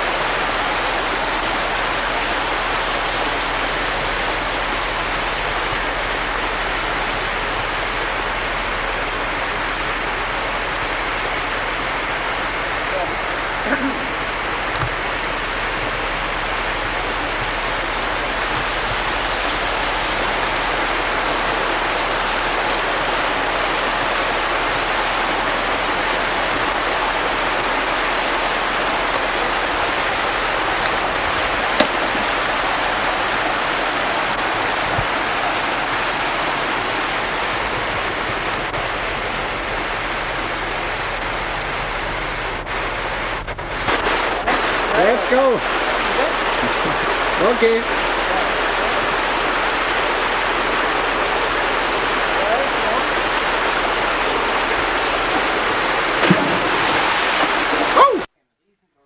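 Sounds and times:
steady rushing noise: 0.0s - 41.3s.

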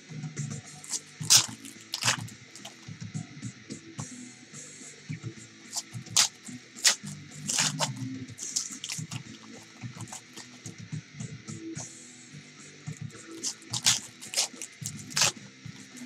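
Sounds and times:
wrapper crinkling and tearing: 0.9s - 2.9s, 5.7s - 10.6s, 13.4s - 16.0s.

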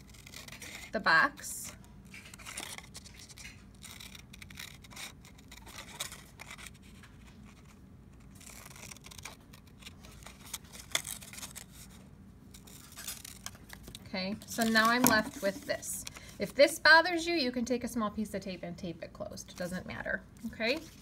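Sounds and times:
scissors snipping paper: 2.1s - 7.1s.

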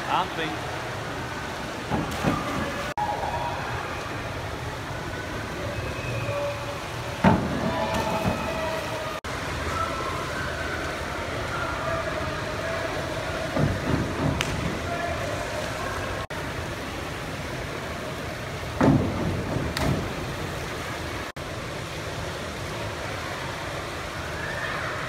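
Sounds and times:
steady hall hum: 0.0s - 25.0s
diving board knocks: 1.8s - 2.9s, 7.2s - 8.8s, 13.4s - 15.0s, 18.7s - 20.5s
divers splashing into water: 6.7s - 16.3s, 18.7s - 21.3s.

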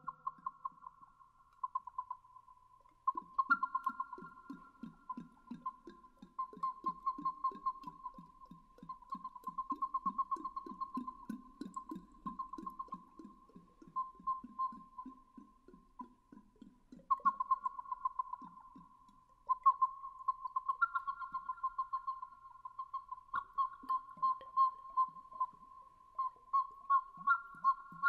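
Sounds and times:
water whistle warbling: 3.1s - 15.6s, 17.0s - 28.0s.

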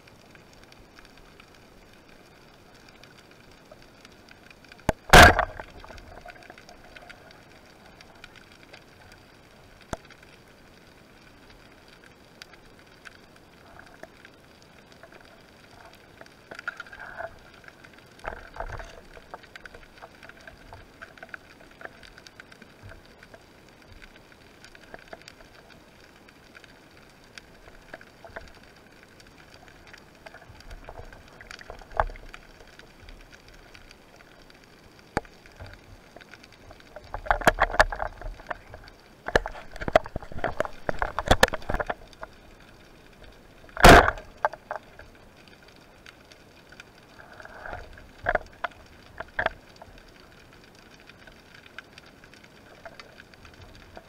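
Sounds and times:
faint crackle of clicks underwater: 0.0s - 54.0s.

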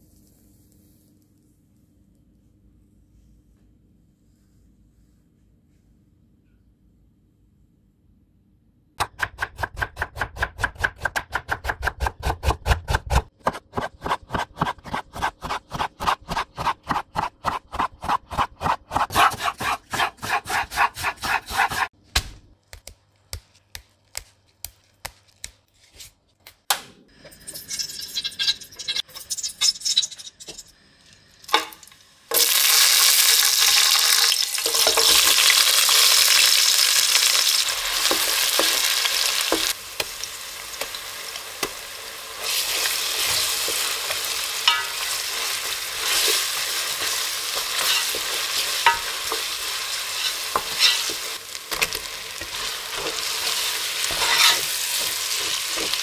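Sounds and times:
knife slicing on cutting board: 12.2s - 21.9s, 54.1s - 54.7s
onions sizzling in hot oil: 31.3s - 56.0s.

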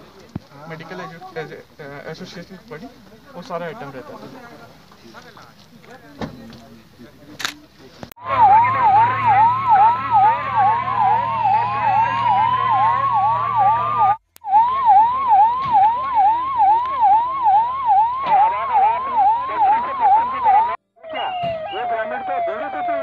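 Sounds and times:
electronic siren yelping: 8.2s - 23.0s
slower gliding siren tone: 8.2s - 23.0s.

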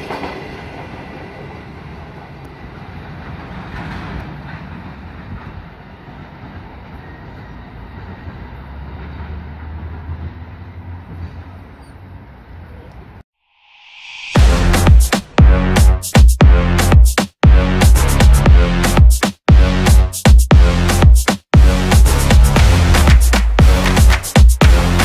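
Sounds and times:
freight train wagons clattering: 2.6s - 12.2s.

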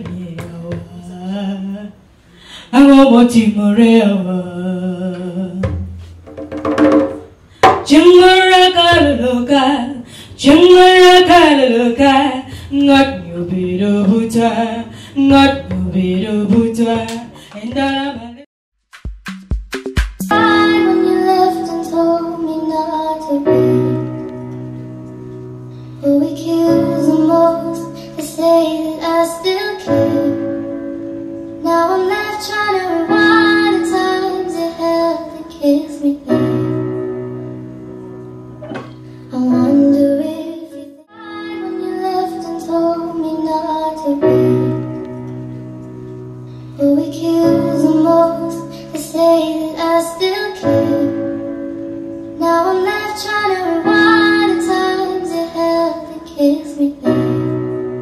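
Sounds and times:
woman singing: 0.0s - 2.0s, 2.7s - 5.8s, 7.8s - 18.5s, 20.3s - 24.1s, 26.0s - 30.6s, 31.6s - 36.6s, 39.3s - 44.9s, 46.8s - 51.4s, 52.4s - 57.4s
keyboard accompaniment: 19.0s - 58.0s.

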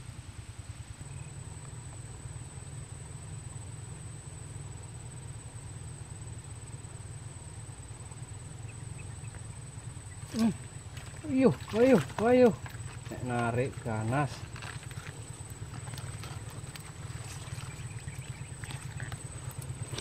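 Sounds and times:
low even rumble: 7.9s - 20.0s.

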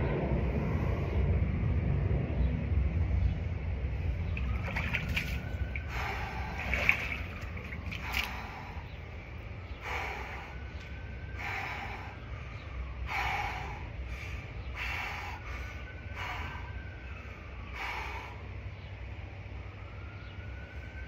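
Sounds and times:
steady low rumble: 0.0s - 21.0s
man breathing hard: 5.8s - 19.1s.

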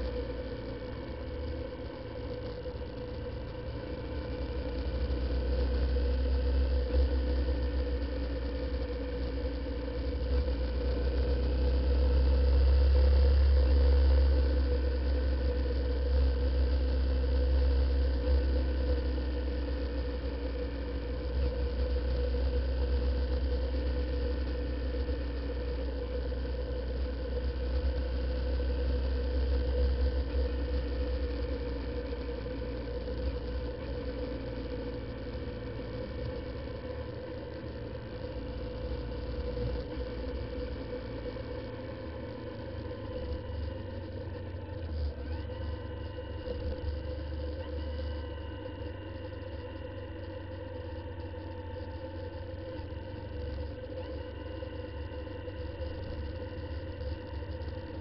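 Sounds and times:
motorcycle engine droning: 0.0s - 58.0s.

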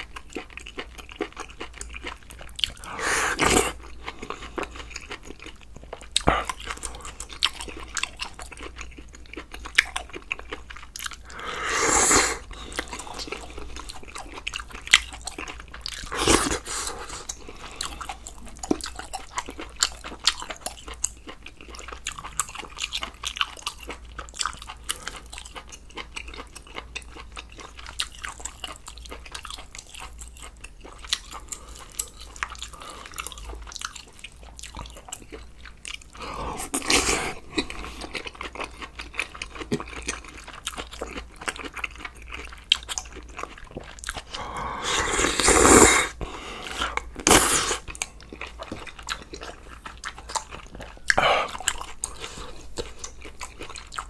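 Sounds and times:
chewing and mouth clicks: 0.0s - 11.5s, 12.3s - 54.0s
slurping noodles: 2.8s - 4.0s, 11.2s - 13.4s, 16.1s - 17.4s, 36.2s - 38.0s, 44.2s - 47.9s.

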